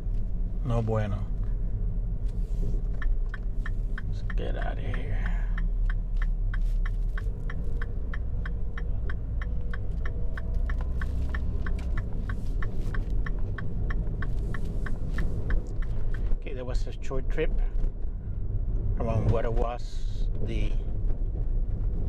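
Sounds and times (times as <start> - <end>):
car engine and road rumble: 0.0 - 22.0
rapid even ticking: 2.8 - 16.4.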